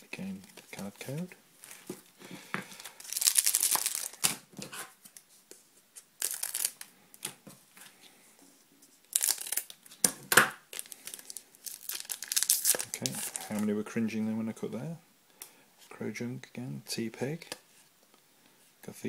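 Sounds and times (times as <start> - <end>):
foil wrapper crinkling: 2.7 - 4.5, 6.2 - 6.9, 9.1 - 10.0, 10.7 - 13.7.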